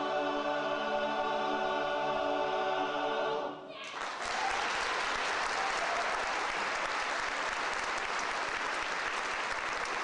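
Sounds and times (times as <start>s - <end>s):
audience applauding: 3.8s - 10.0s.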